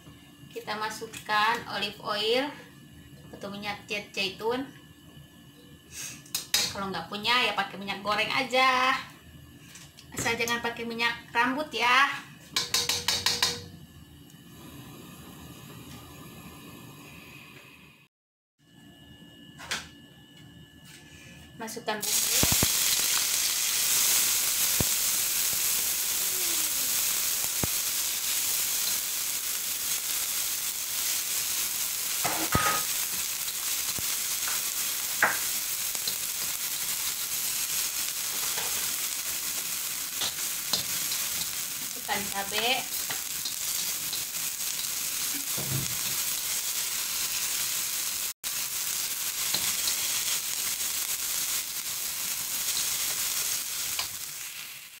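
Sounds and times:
spatula scraping and tapping pan: 12.5s - 13.7s
paste sizzling in hot oil: 22.0s - 55.0s.

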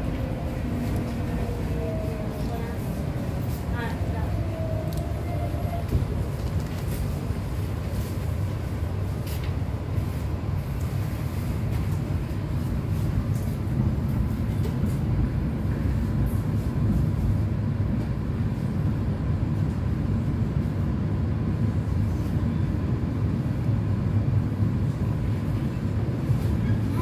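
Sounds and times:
train wheels rumbling: 0.0s - 27.0s.

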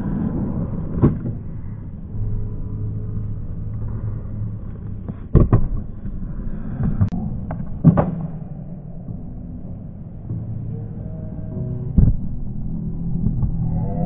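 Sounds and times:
skateboard wheels rolling on ramp: 0.0s - 8.5s.

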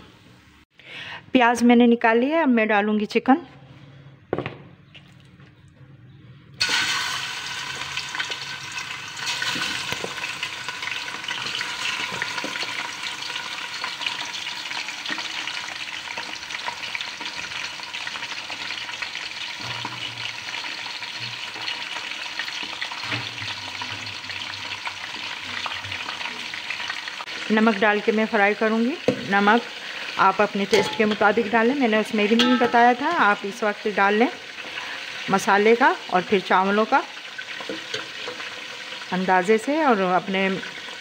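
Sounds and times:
chicken frying in hot oil: 6.6s - 30.8s, 33.1s - 41.0s.

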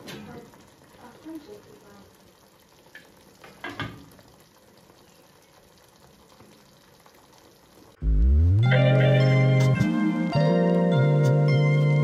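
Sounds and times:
pots bubbling on stove: 0.0s - 12.0s
pot clatter: 2.9s - 4.3s
loud music with bass slide: 8.0s - 12.0s.

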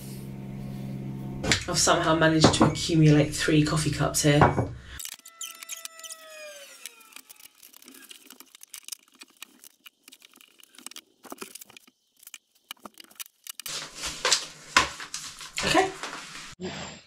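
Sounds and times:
squeak falling in pitch: 5.1s - 7.6s.

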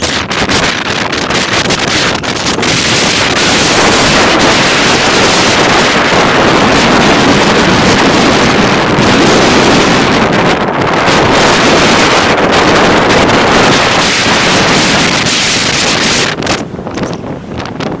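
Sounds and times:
surf breaking on shore: 0.0s - 16.7s
wind buffeting microphone: 0.0s - 18.0s.

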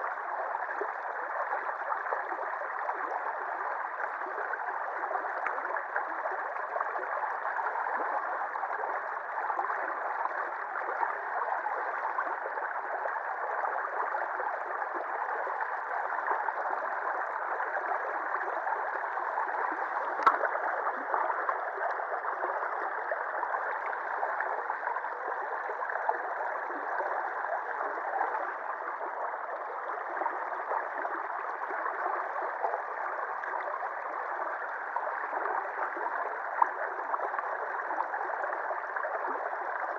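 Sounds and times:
river water rushing and babbling: 19.0s - 24.5s.

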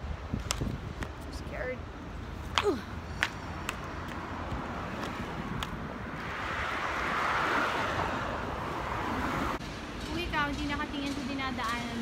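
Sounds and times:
traffic rumble: 0.0s - 12.0s
car passing: 3.2s - 9.6s.

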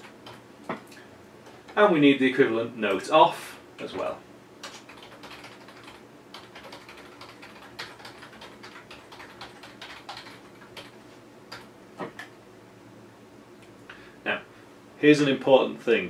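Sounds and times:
computer keyboard typing: 0.0s - 0.4s, 4.6s - 12.3s.

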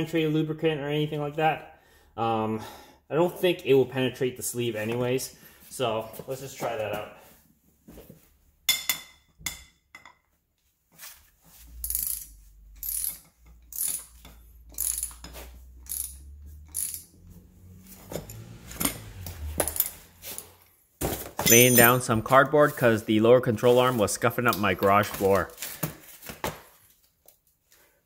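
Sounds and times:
ratchet wrench clicking: 11.8s - 17.2s.

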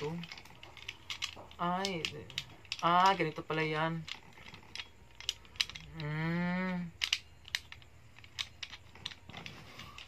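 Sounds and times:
humming voice: 5.8s - 7.0s.

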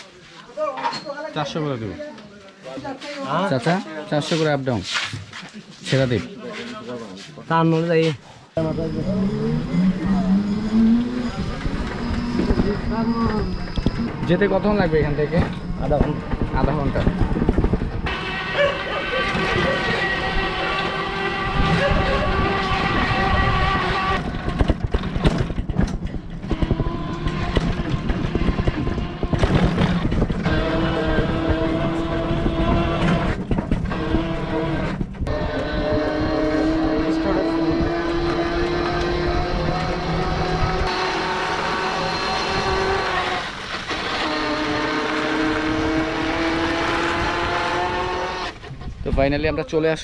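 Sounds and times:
road rumble: 8.4s - 49.1s
steady whine: 8.5s - 48.7s
auto-rickshaw body rattling: 24.1s - 35.3s.

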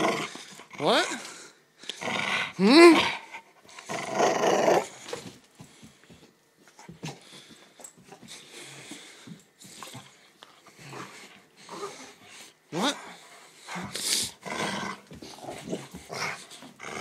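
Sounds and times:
dog growling: 0.0s - 5.2s, 10.7s - 17.0s.

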